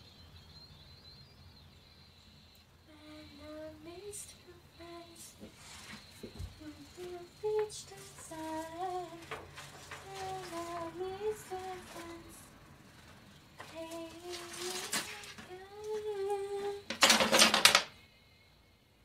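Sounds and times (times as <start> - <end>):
rustles: 3.2 - 16.9
woman humming: 6.2 - 12.6, 13.6 - 16.9.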